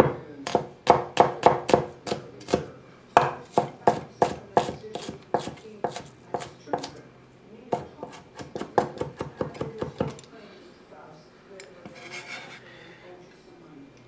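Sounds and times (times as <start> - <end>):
knife chopping on wooden board: 0.0 - 6.9, 7.7 - 10.2.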